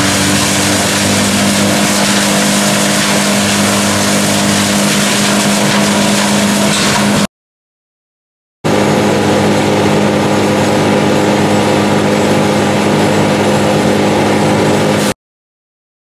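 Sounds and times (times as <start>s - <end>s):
engine idling: 8.7s - 15.1s.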